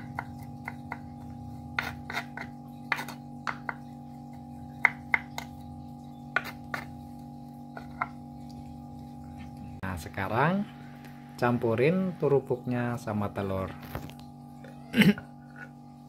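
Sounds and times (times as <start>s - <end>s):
knife chopping on wooden board: 0.0s - 5.6s, 6.3s - 7.0s, 7.7s - 8.2s.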